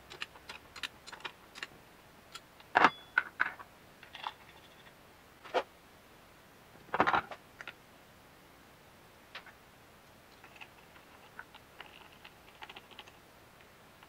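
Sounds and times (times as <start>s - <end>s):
metal parts clicking and tapping: 0.0s - 1.7s.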